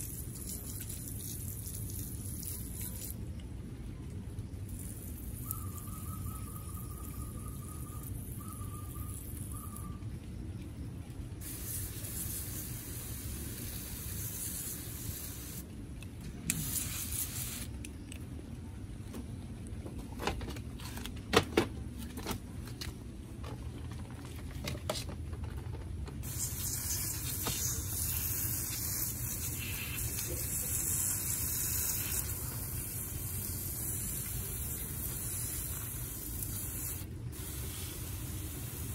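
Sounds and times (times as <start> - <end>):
water hissing from spray nozzle: 11.4 - 15.6, 16.5 - 17.7, 26.2 - 38.9.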